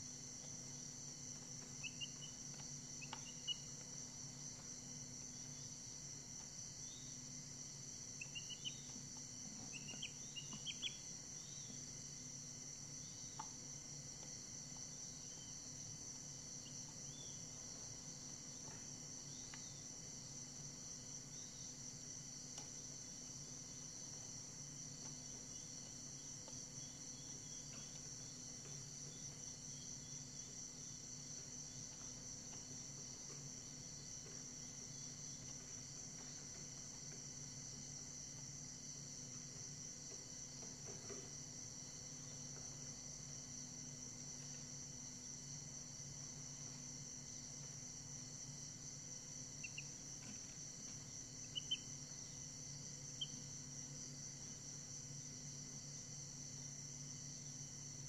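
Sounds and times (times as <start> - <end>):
chick peeps: 1.8 - 2.4, 3.0 - 3.7, 8.2 - 9.0, 9.7 - 11.0, 51.5 - 51.9.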